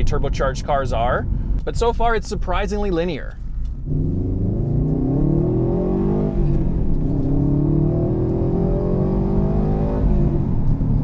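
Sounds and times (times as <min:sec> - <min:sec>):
car engine accelerating: 0:03.6 - 0:11.0.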